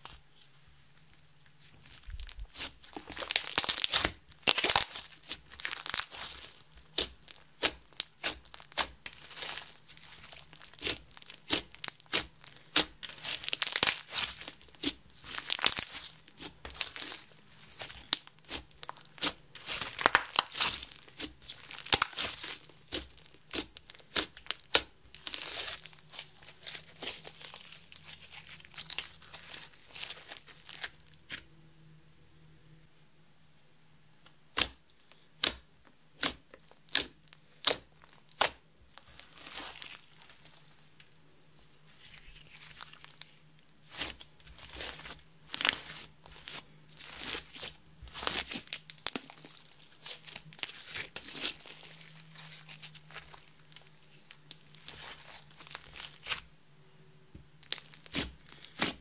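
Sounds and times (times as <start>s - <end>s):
slime clicking and crackling: 1.9s - 31.2s, 36.2s - 40.5s, 42.5s - 56.4s, 57.6s - 59.0s.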